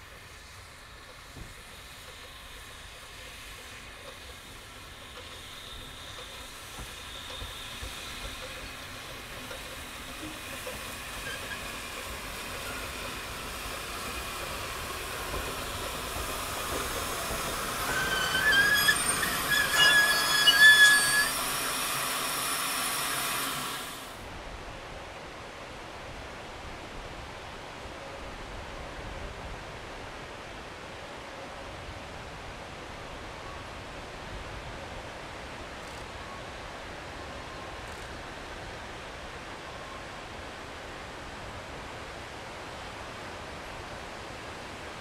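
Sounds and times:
steam locomotive hissing: 0:00.0 - 0:24.3
high-pitched metallic squealing: 0:11.1 - 0:13.0, 0:17.6 - 0:24.0.

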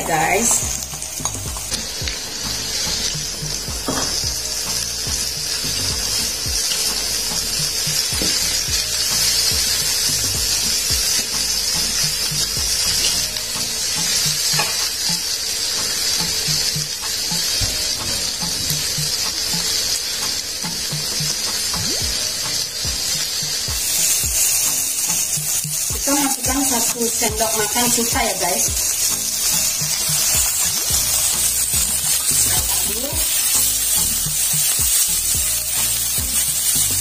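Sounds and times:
vegetables sizzling in hot oil: 0:00.0 - 0:37.0.

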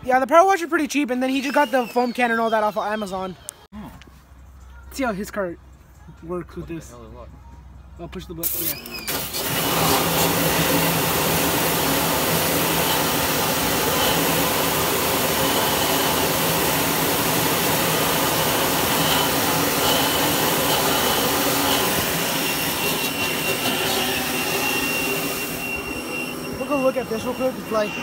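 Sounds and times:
pressure washer water jet blasting: 0:08.4 - 0:28.0.

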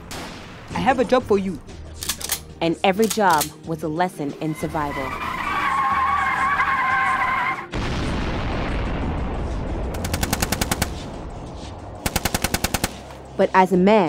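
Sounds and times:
tyres squealing: 0:04.3 - 0:07.7
automatic gunfire: 0:10.0 - 0:11.0, 0:12.0 - 0:13.2.

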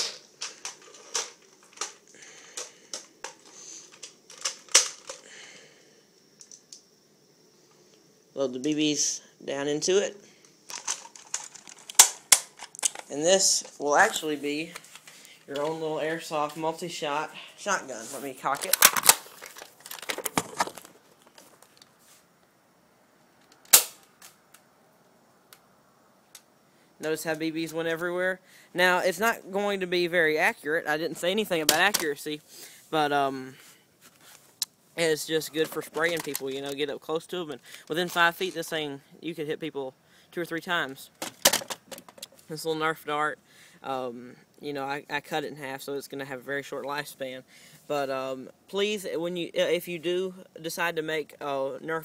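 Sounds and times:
pellets landing on wood: 0:10.7 - 0:13.2, 0:18.6 - 0:21.7.

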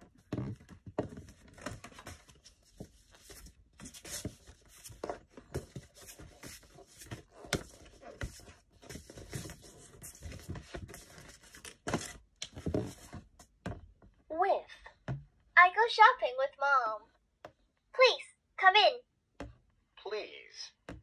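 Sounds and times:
cardboard cards shuffling: 0:00.0 - 0:13.5.

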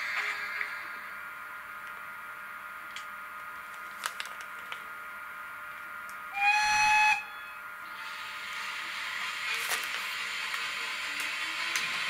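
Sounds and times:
short locomotive whistle blast: 0:06.4 - 0:07.6.

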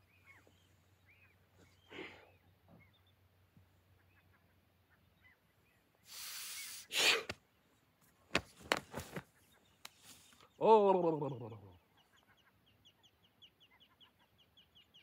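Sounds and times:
faint bird chirps: 0:00.0 - 0:06.9, 0:09.3 - 0:15.0
person breathing out: 0:06.1 - 0:07.3
rustles and clicks: 0:08.3 - 0:10.4.

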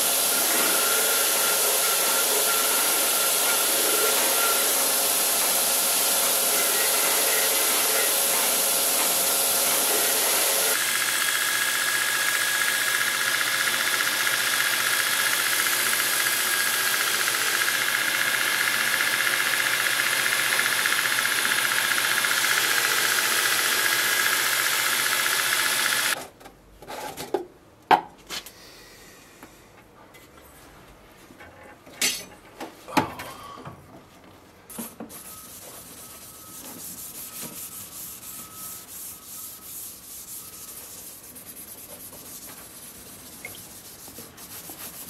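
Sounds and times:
belt grinder grinding steel blade: 0:00.0 - 0:26.2
grinding machine hissing: 0:00.0 - 0:26.2.

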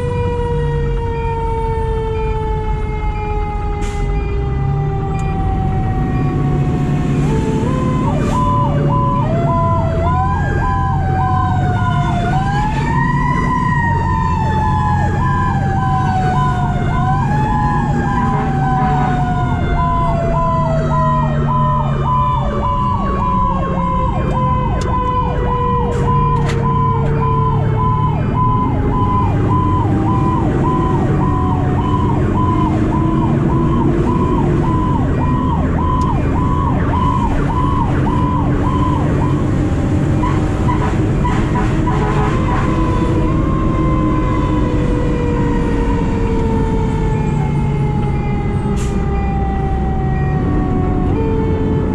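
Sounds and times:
mechanical siren wailing: 0:00.0 - 0:51.9
electronic siren cycling rapidly: 0:07.2 - 0:39.4.

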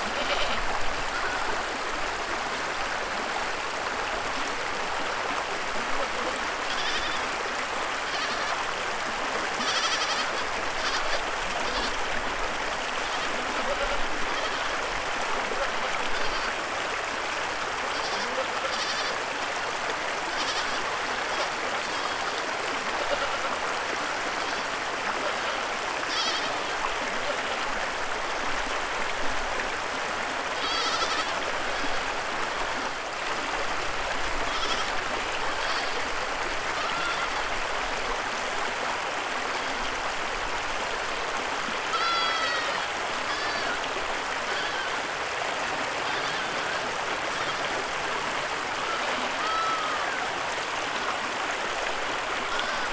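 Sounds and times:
goats bleating: 0:00.0 - 0:01.7, 0:06.0 - 0:07.3, 0:08.0 - 0:08.7, 0:09.6 - 0:12.0, 0:12.9 - 0:14.8, 0:15.6 - 0:16.6, 0:17.9 - 0:19.2, 0:20.3 - 0:24.8, 0:25.4 - 0:27.6, 0:30.6 - 0:32.1, 0:34.4 - 0:36.1, 0:36.8 - 0:37.4, 0:41.9 - 0:45.0, 0:46.0 - 0:47.8, 0:48.8 - 0:50.2, 0:52.5 - 0:52.9
creek water rushing: 0:00.0 - 0:52.9.

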